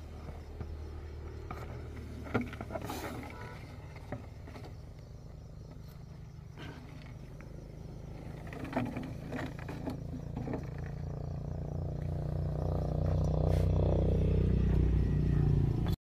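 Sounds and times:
engine humming: 0:00.0 - 0:16.0.

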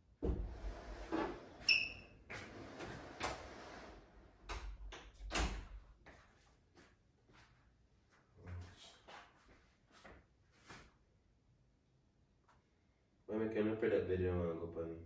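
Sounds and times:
door squeak: 0:01.6 - 0:02.1
sliding door rattling on track: 0:02.4 - 0:04.2.

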